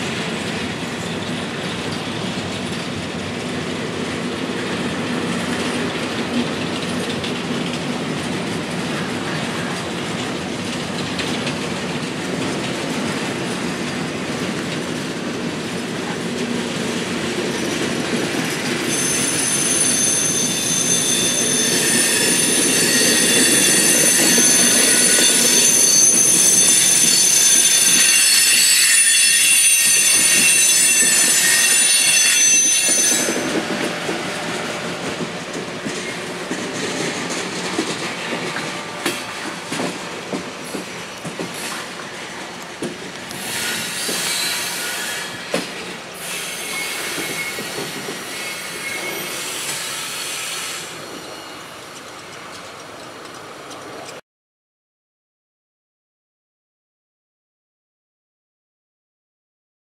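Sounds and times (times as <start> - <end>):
freight train cars rumbling on rails: 0.0 - 54.2
high-pitched wheel squeal: 18.5 - 34.7, 46.2 - 51.8.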